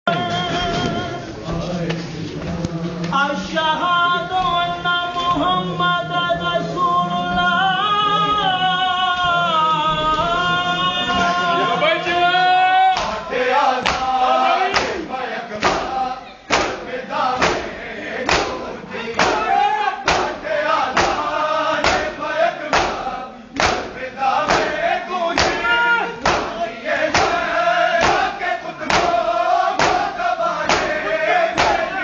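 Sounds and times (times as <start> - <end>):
man singing a lament: 0.1 - 16.2, 18.4 - 32.0
voices: 0.1 - 32.0
hands slapping chests: 13.8 - 15.0, 16.5 - 16.8, 17.4 - 17.7, 18.3 - 18.6, 20.0 - 22.1, 22.7 - 23.0, 23.6 - 23.9, 24.5 - 24.8, 26.2 - 27.4, 28.0 - 28.3, 28.9 - 29.2, 29.8 - 31.0, 31.6 - 31.9.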